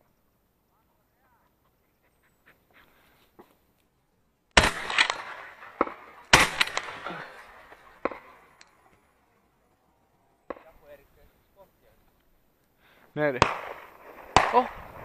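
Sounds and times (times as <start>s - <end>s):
faint sharp cracks: 4.5s - 9.1s, 10.4s - 11.0s
shotgun shots with echo: 4.6s - 8.5s, 13.3s - 14.9s.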